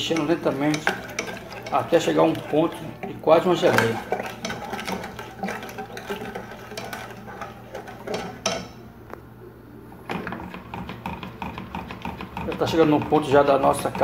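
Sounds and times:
spoon scraping metal pot: 0.0 - 8.8.

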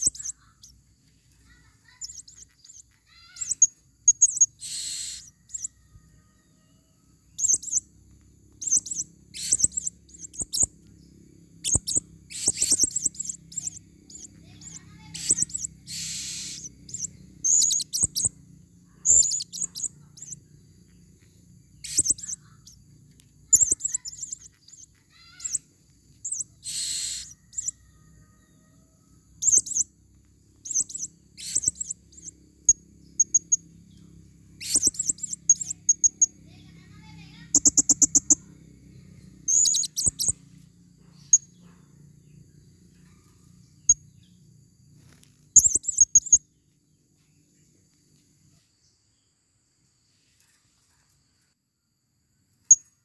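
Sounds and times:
parrots chirping: 0.0 - 0.8, 1.4 - 5.7, 7.3 - 7.8, 8.6 - 10.8, 11.5 - 18.4, 19.0 - 20.4, 21.8 - 22.8, 23.5 - 27.8, 29.4 - 29.9, 30.6 - 33.6, 34.6 - 36.8, 37.4 - 38.4, 39.4 - 40.4, 45.6 - 46.4
harsh shrill parrot calls: 1.5 - 5.7, 8.6 - 10.7, 11.6 - 18.3, 21.8 - 22.6, 23.5 - 27.8, 30.7 - 32.3, 34.6 - 36.8.

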